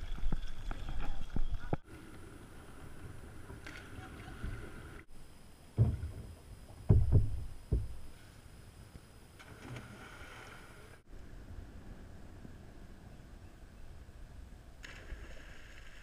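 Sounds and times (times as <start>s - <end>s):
kayak paddling: 0.0s - 5.1s
paddle knocking on hull: 5.8s - 8.0s.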